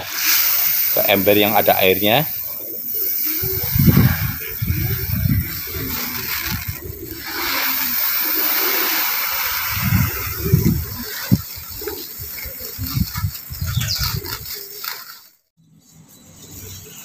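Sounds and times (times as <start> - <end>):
corn kernels pouring into water: 0.0 - 3.4, 5.0 - 10.4.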